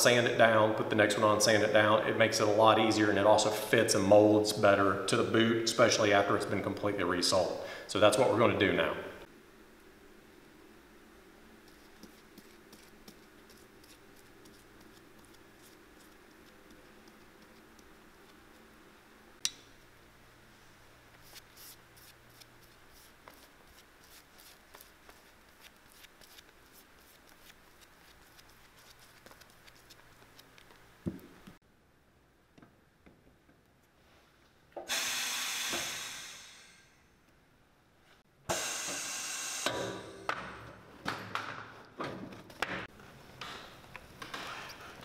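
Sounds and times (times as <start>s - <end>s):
low room hum: 0.0s - 34.9s
glue dauber scratching: 11.6s - 18.7s, 21.2s - 30.8s.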